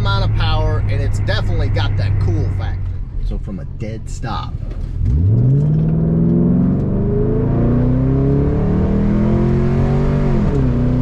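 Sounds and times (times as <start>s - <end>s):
car engine accelerating hard: 4.7s - 11.0s.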